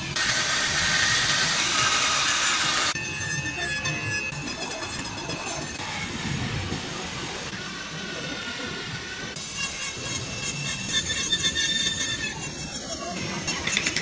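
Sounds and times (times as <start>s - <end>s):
rotary tool grinding wood: 8.6s - 14.0s.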